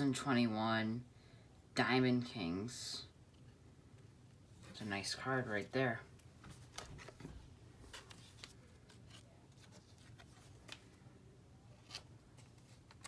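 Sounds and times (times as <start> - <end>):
trading cards being handled: 6.1 - 13.0.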